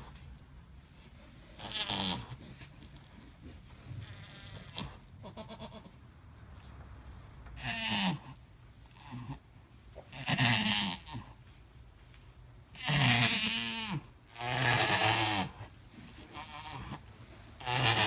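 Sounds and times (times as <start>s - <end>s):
goat bleating: 1.6s - 3.4s, 4.0s - 6.0s, 7.6s - 11.4s, 12.7s - 18.0s.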